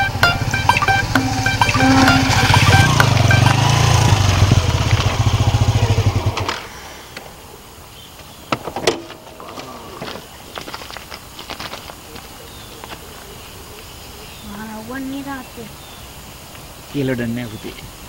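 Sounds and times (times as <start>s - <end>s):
motorcycle engine running: 0.0s - 6.7s.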